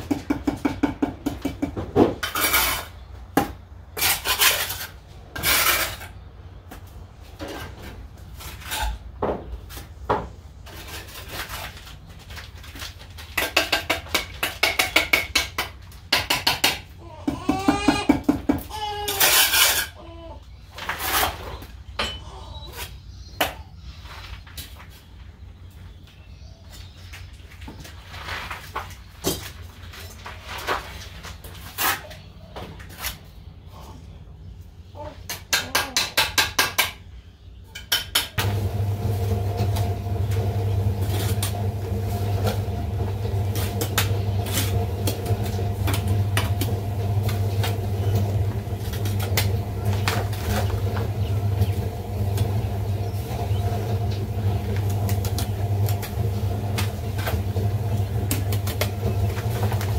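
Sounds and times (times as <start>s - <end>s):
trowel scraping and tapping: 13.2s - 16.8s
low motor hum: 38.4s - 59.9s.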